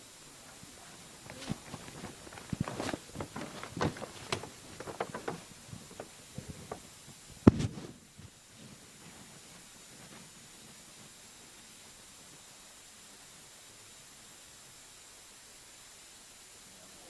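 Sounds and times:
knocks and shuffles on a stage: 0:00.6 - 0:10.3.

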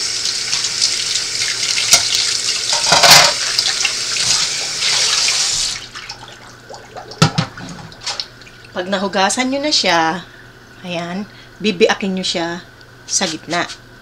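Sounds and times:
faucet running into sink: 0:00.0 - 0:08.7.

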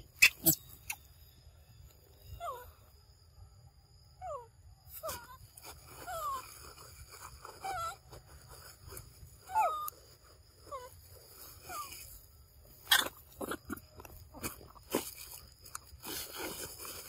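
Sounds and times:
monkeys whimpering: 0:07.6 - 0:08.0, 0:09.4 - 0:10.0, 0:12.8 - 0:14.5.

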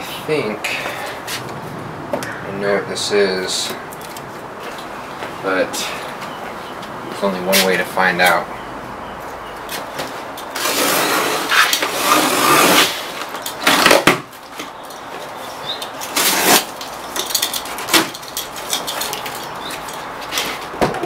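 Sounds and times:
box cutter slicing packing tape: 0:10.6 - 0:14.2, 0:16.1 - 0:16.8.

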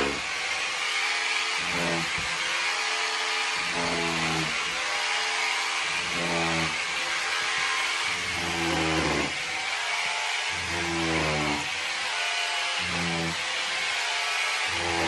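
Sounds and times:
hammer drill drilling into wall: 0:00.0 - 0:15.0.

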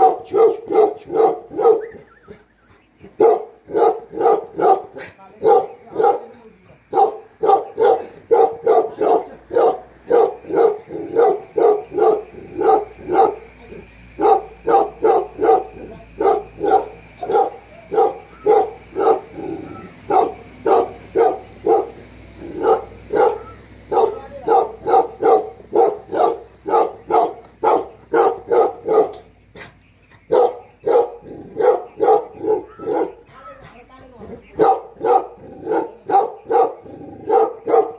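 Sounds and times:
dog barking: 0:00.0 - 0:02.1, 0:03.2 - 0:33.3, 0:34.4 - 0:37.9.

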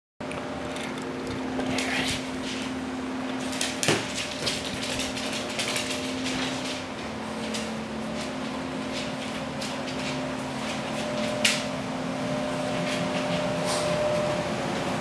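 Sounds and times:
low hum: 0:00.2 - 0:15.0
dog claws clicking on floor: 0:00.3 - 0:02.7, 0:03.3 - 0:11.7
ball bouncing on wooden floor: 0:03.8 - 0:04.6.

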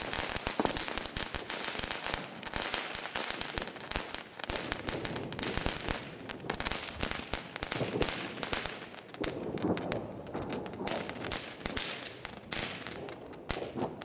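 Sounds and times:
fireworks crackling and popping: 0:00.0 - 0:14.0.

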